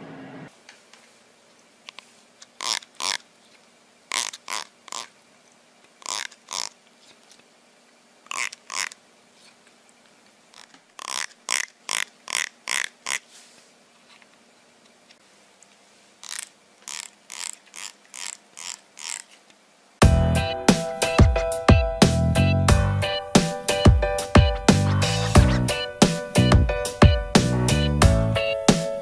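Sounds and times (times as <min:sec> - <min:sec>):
finger strumming plastic comb: 0:02.6 - 0:03.2, 0:06.0 - 0:06.7.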